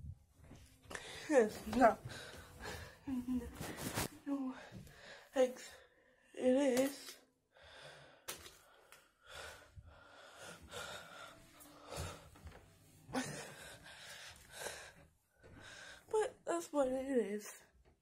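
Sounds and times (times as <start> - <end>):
soft breathing: 2.0 - 6.1, 7.6 - 16.1.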